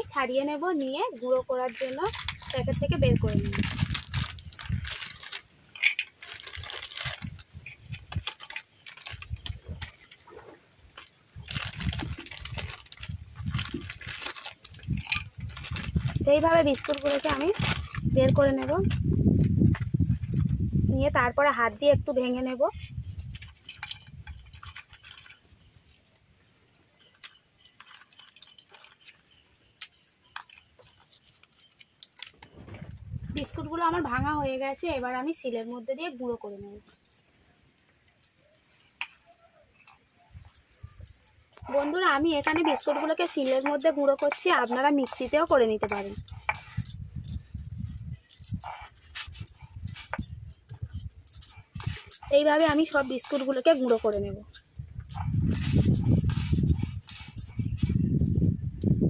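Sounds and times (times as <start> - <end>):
plastic wrapper crinkling: 0.7 - 10.2, 10.9 - 19.0, 23.2 - 26.0, 27.0 - 33.0, 39.8 - 58.0.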